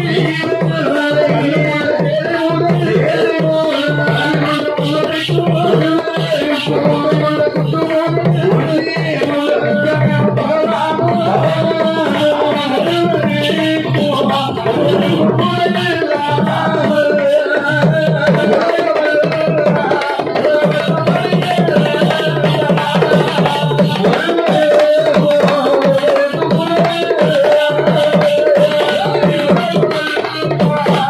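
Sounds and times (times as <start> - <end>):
fast steady drumbeat: 0.0 - 31.0.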